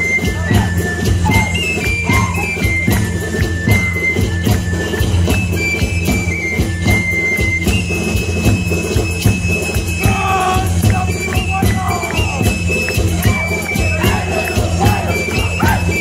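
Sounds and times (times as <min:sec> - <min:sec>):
drum and bass beat: 0:09.9 - 0:16.0.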